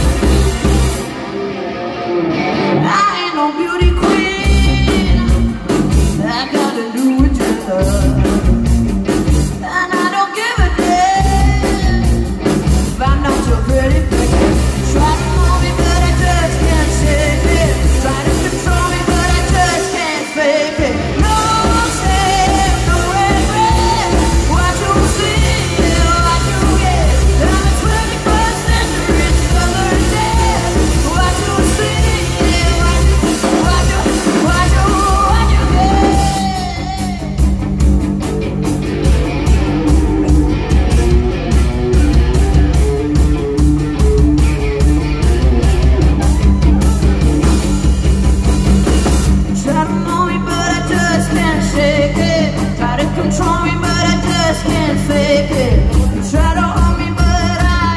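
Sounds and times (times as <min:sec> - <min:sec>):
drum kit beat: 0:00.0 - 0:01.3, 0:03.8 - 0:57.9
bass guitar: 0:00.0 - 0:57.9
electric guitar: 0:00.0 - 0:57.9
person singing: 0:02.4 - 0:37.7, 0:39.0 - 0:57.9.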